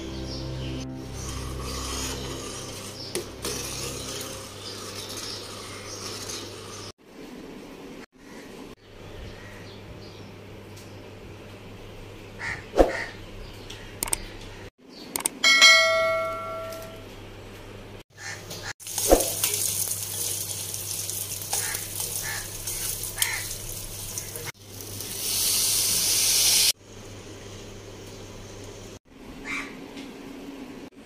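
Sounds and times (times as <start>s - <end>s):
ringing metallic strike: 15.4s - 17.1s
rushing hiss: 25.1s - 26.8s.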